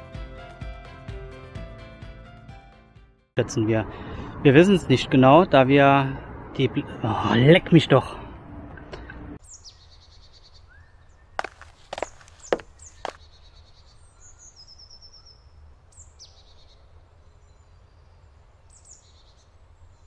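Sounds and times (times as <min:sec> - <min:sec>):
small birds chirping: 0:09.4 - 0:20.0.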